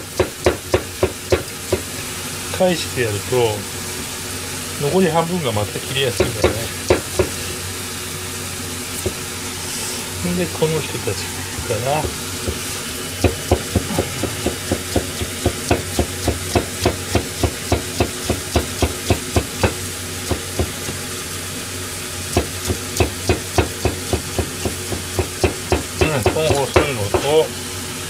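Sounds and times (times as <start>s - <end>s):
knife chopping on cutting board: 0.1s - 1.9s, 6.1s - 7.4s, 11.6s - 21.0s, 22.3s - 27.4s.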